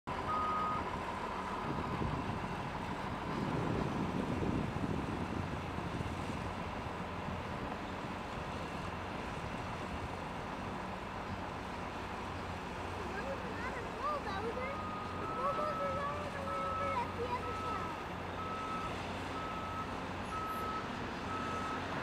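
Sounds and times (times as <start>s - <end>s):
distant excavator engine rumble: 0.1s - 22.0s.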